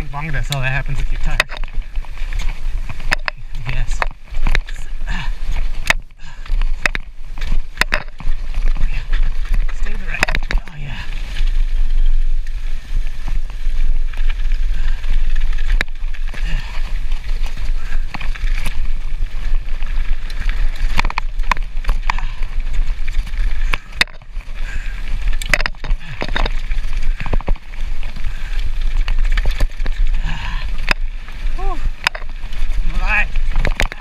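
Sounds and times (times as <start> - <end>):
bike rattling over bumps: 0.0 - 34.0
bike rumbling on rough trail: 0.0 - 34.0.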